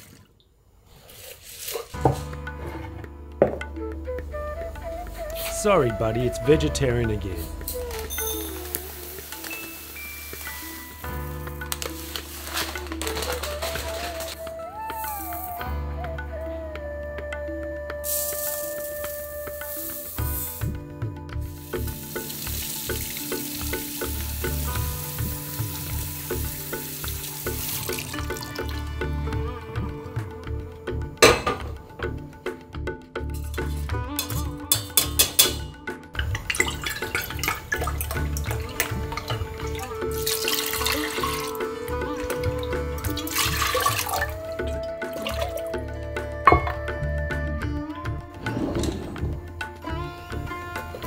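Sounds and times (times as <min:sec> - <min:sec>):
background music: 0:01.9 - 0:51.0
tap water splashing into sieve: 0:11.7 - 0:14.3, 0:21.8 - 0:28.8, 0:36.2 - 0:45.7.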